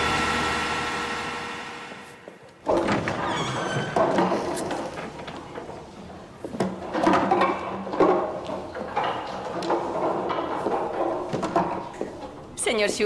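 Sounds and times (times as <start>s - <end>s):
chairs being moved: 2.3s - 12.4s
heavy wooden door opening: 2.6s - 5.5s.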